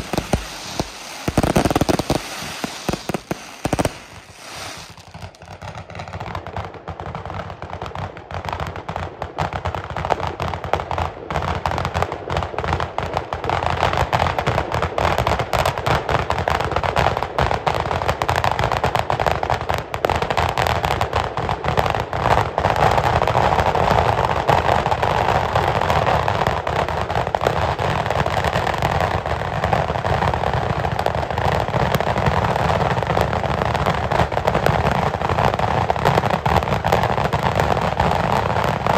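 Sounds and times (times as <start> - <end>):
firecrackers banging: 0.0 - 6.1.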